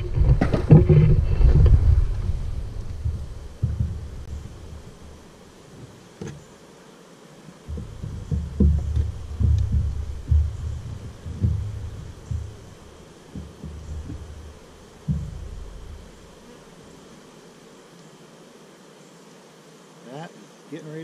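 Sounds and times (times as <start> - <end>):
low thumps on microphone: 0.0 - 5.2, 7.7 - 16.4.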